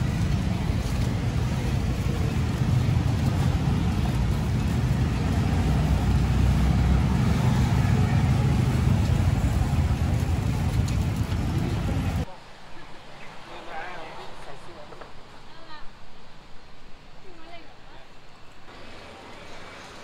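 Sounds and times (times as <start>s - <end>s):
road traffic engine rumble: 0.0s - 12.3s.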